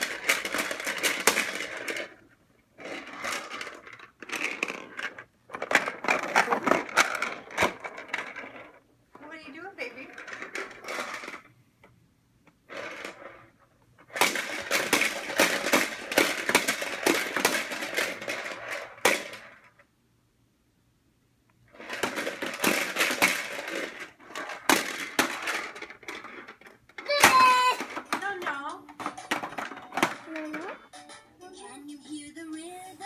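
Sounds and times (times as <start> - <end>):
plastic balls popping in toy dome: 14.1 - 19.7.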